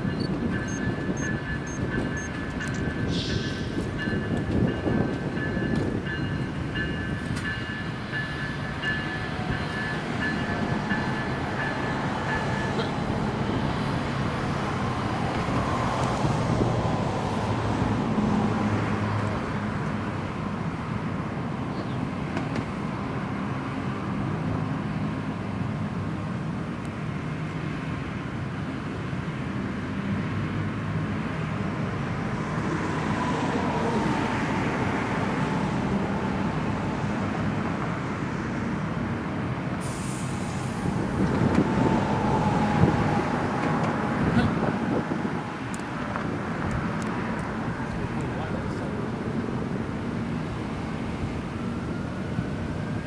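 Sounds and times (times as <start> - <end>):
outdoor vehicle noise: 0.0 - 53.0.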